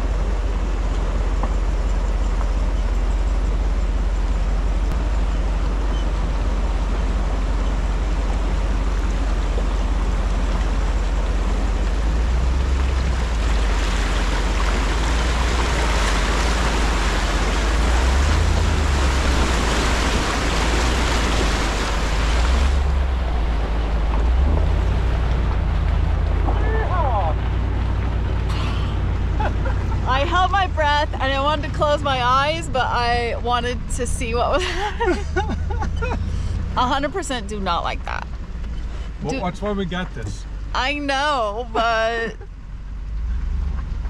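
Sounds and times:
water splashing around tyre: 0.0 - 33.4
low rumble: 0.0 - 44.0.

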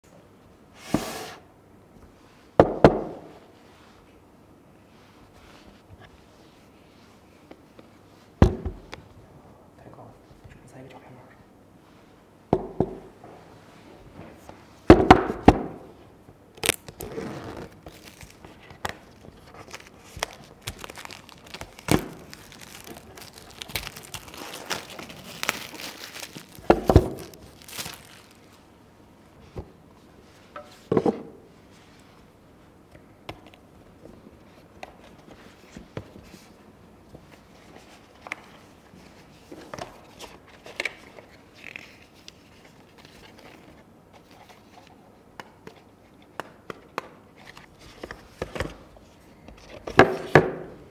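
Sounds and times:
plastic shrink wrap crinkling: 16.6 - 28.6
card and paper rustling: 17.5 - 28.6.

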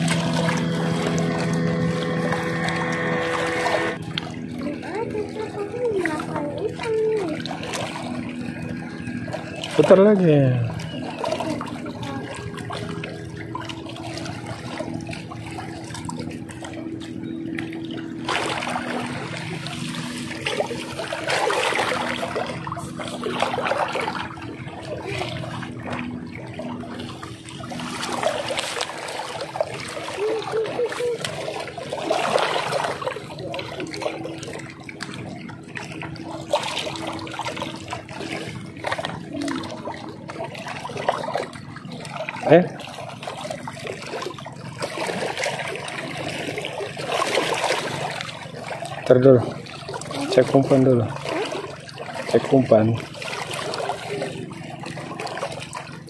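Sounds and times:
sea water lapping on rocks: 0.0 - 56.0.

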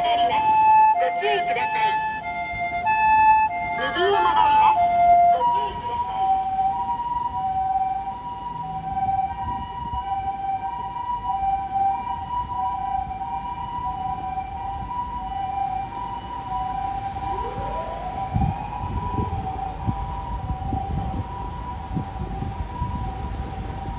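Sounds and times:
rumbling traffic: 0.0 - 23.9
two-tone ambulance siren: 0.0 - 23.9
low rising tone: 16.5 - 19.7.

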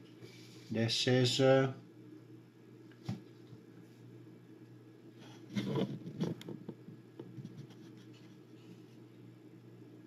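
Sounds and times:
low steady hum: 0.0 - 10.0
soft taps and rustles: 2.9 - 3.6.

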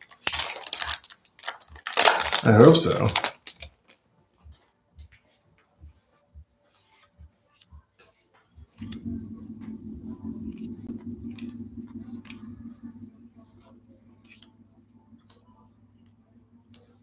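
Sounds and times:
steady low hum: 8.6 - 17.0.

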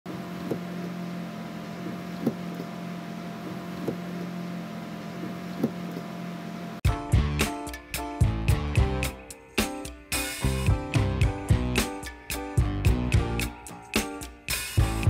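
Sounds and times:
van engine hum: 0.1 - 7.4, 10.4 - 13.6
windshield wipers thumping: 1.8 - 2.7, 3.4 - 4.2, 5.2 - 6.1.

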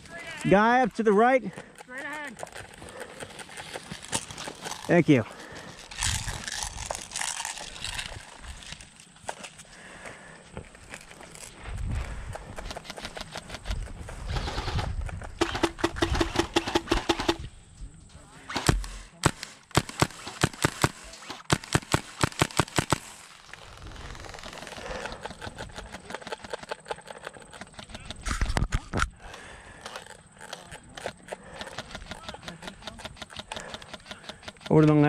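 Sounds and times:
airsoft rifles firing: 15.4 - 17.5, 18.5 - 23.4.

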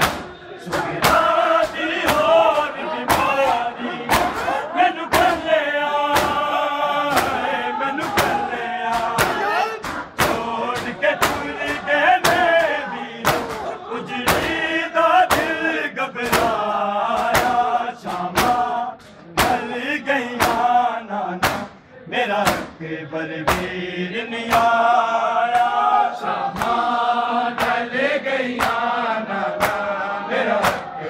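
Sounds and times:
hands slapping chests: 0.0 - 5.4, 7.1 - 7.4, 8.0 - 13.7, 15.3 - 15.6, 16.2 - 16.6, 17.2 - 17.7, 21.4 - 21.8, 23.5 - 23.7, 26.5 - 26.8, 27.5 - 27.8, 28.6 - 28.8, 29.5 - 29.9, 30.6 - 30.9
men chanting: 0.0 - 31.0.

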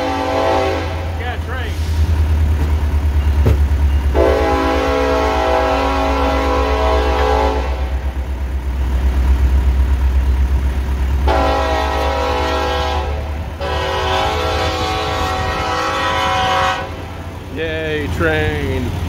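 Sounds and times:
train horn blasts: 0.0 - 1.8, 4.1 - 8.2, 11.2 - 17.2.

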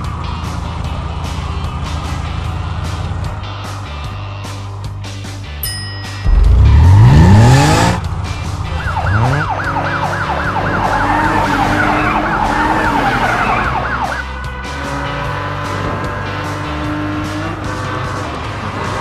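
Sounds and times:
cartoon vehicle engine revving: 6.3 - 14.1
siren warbling: 8.7 - 14.2.

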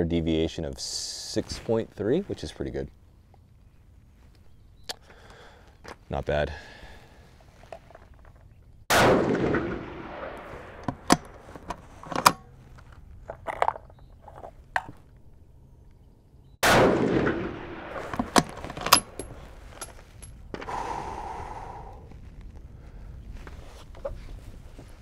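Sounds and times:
rifle shots echoing: 8.9 - 11.4, 16.6 - 19.6
rifle bolt clicks: 18.0 - 19.4.

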